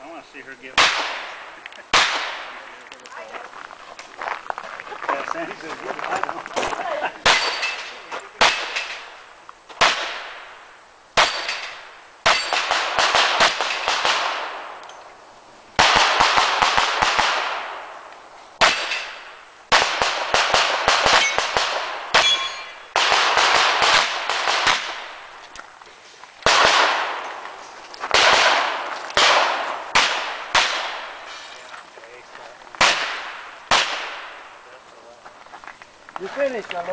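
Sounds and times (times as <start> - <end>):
revolver gunshots: 0.7 - 2.7, 7.2 - 9.2, 9.8 - 14.8, 15.8 - 18.0, 18.6 - 25.3, 26.4 - 27.4, 28.1 - 31.3, 32.8 - 34.6
bullets clanging on steel targets: 7.2 - 9.2, 11.2 - 12.8, 18.6 - 19.4, 21.1 - 22.9.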